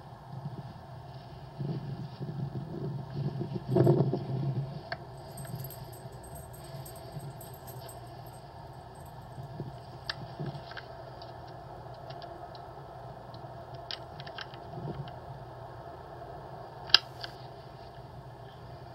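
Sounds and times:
light clicks and ticks: 0:05.2 - 0:09.8.

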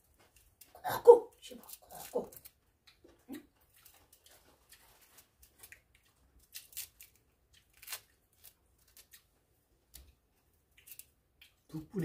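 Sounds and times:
knife scraping root skin: 0:06.5 - 0:09.2.

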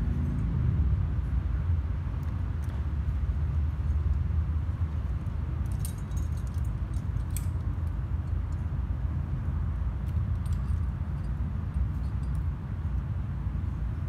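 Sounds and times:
steady low rumble: 0:00.0 - 0:14.0
metal climbing gear clinking: 0:03.7 - 0:09.0, 0:09.8 - 0:13.0.

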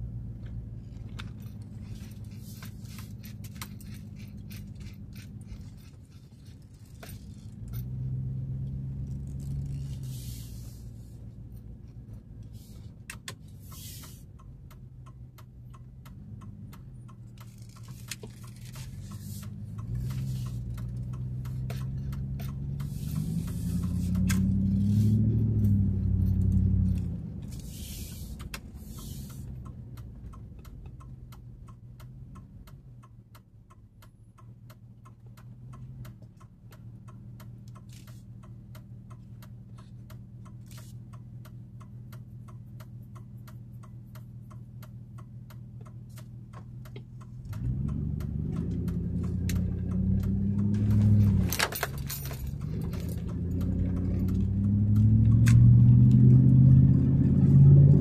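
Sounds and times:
truck engine idling and revving: 0:00.0 - 0:58.0.

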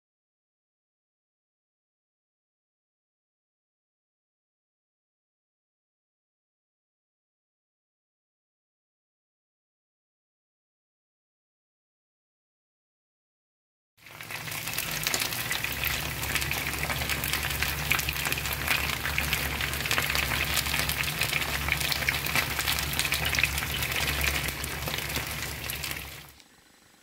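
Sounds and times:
chicken frying in a pan: 0:14.0 - 0:27.0.

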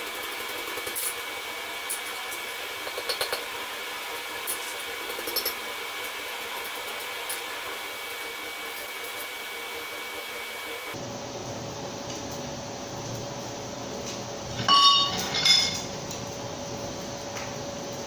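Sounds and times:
metal clinks on anvil: 0:14.7 - 0:15.9.

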